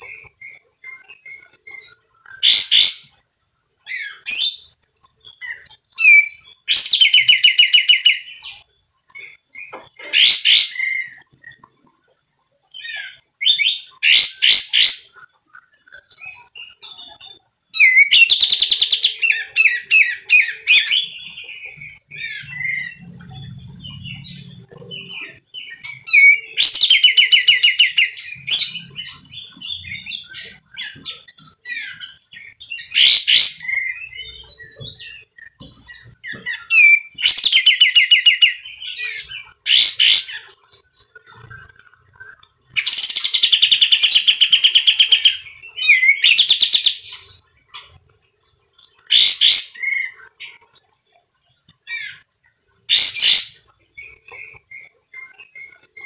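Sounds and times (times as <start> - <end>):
bird rattling song: 12.7 - 48.0.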